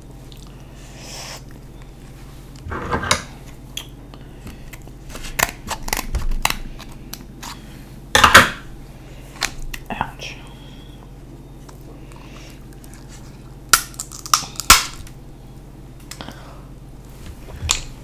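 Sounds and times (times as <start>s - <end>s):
seafood shell cracking: 13.7s - 15.2s.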